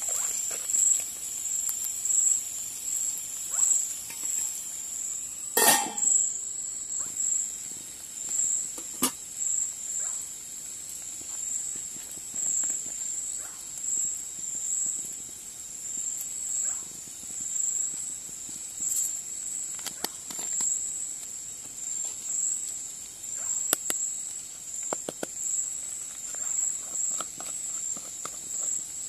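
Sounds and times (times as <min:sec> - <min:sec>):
night insects trilling: 0:00.0 - 0:29.0
spice containers clicking: 0:24.8 - 0:28.9.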